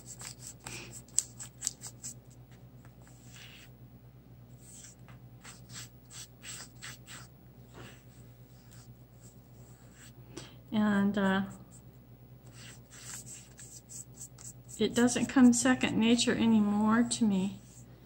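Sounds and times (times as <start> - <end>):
paintbrush scratching on paper: 0.0 - 2.2, 3.0 - 3.7, 4.6 - 10.2, 12.4 - 15.7.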